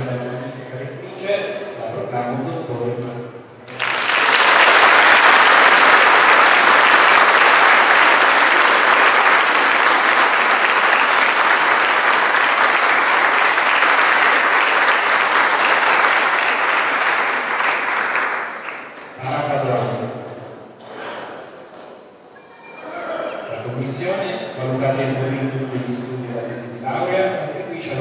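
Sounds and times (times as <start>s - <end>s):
audience applauding: 3.7s - 19.2s.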